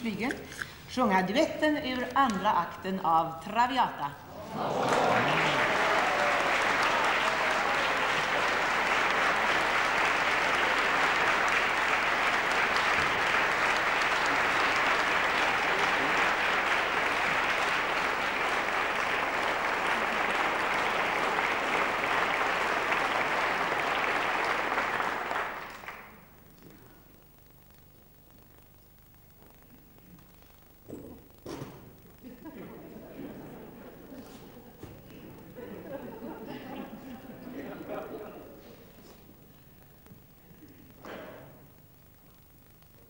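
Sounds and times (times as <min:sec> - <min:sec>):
audience applauding: 0:04.4 - 0:26.3.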